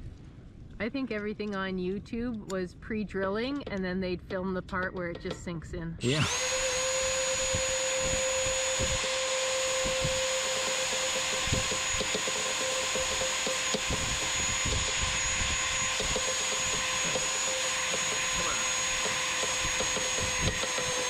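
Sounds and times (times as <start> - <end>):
cordless drill whining: 6.0 - 21.0.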